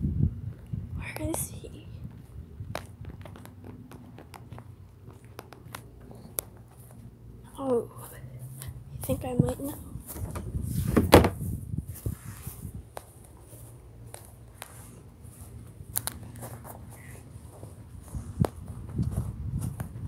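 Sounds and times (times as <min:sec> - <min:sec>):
footsteps on grass: 0:02.0 - 0:07.4, 0:08.5 - 0:20.0
rustling knock: 0:10.1 - 0:11.5.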